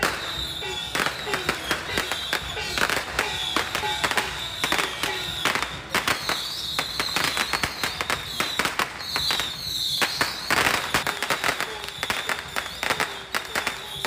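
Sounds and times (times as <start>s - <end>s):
firecrackers cracking: 0.0s - 14.0s
high shrill tone: 0.0s - 14.0s.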